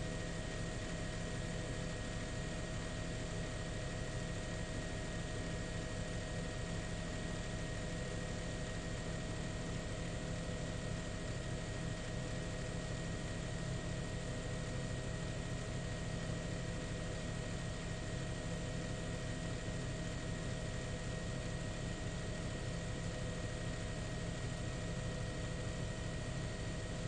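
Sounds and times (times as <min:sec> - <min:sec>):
helicopter engine and rotors: 0:07.6 - 0:15.7.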